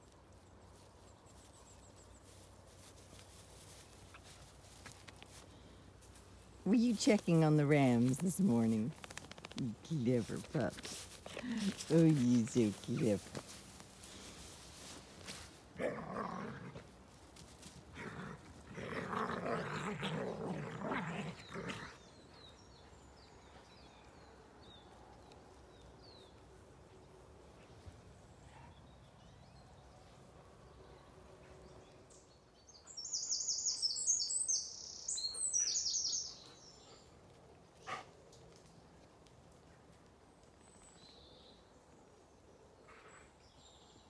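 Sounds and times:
songbird singing: 0.0s - 16.9s, 17.9s - 38.0s, 40.2s - 44.0s
dogs growling: 15.8s - 16.9s, 17.9s - 22.2s.

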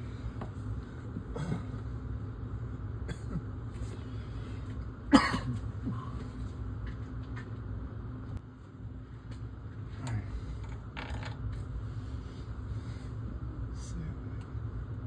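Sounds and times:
steady low hum: 0.0s - 15.0s
man coughing: 1.3s - 1.8s, 3.0s - 3.6s, 5.1s - 6.2s.

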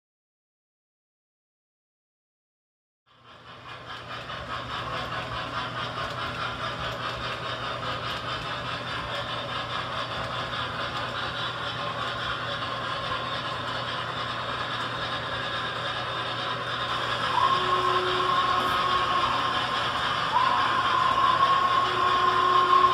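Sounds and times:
model train wheels rumbling: 3.1s - 22.9s
electrical hum: 13.0s - 22.9s.

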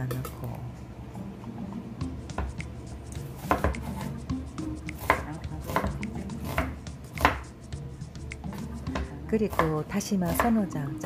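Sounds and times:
knife chopping onion on board: 2.3s - 7.6s, 8.2s - 10.7s.

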